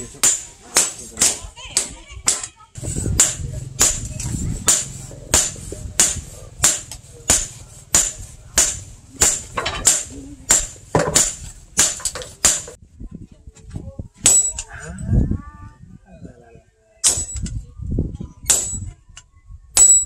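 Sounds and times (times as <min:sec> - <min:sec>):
hammer striking metal on anvil: 0:03.2 - 0:12.8, 0:18.5 - 0:18.8.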